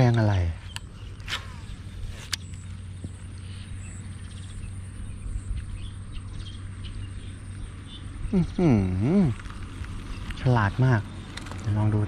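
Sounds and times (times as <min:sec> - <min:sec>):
faint birds chirping: 0:00.0 - 0:12.0
low outdoor hum: 0:00.0 - 0:12.0.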